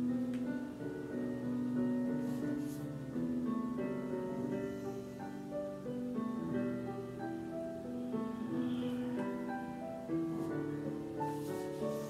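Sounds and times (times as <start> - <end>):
calm instrumental music: 0.0 - 12.0.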